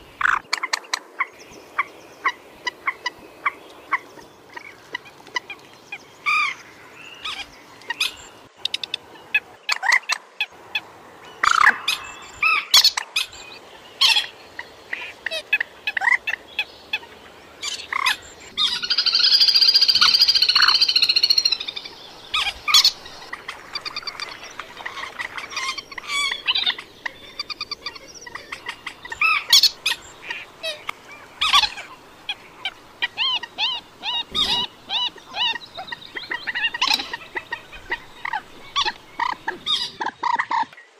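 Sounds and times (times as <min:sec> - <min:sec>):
moorhen calls: 0:10.7 - 0:40.8.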